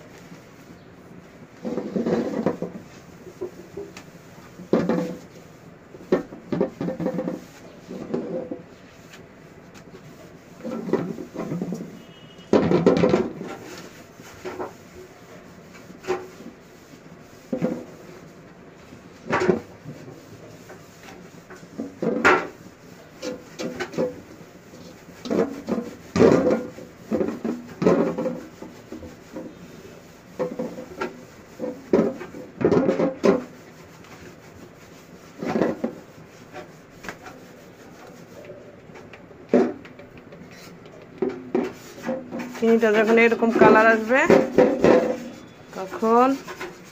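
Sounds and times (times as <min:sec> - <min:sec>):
spatula scraping metal pot: 0:39.5 - 0:46.9.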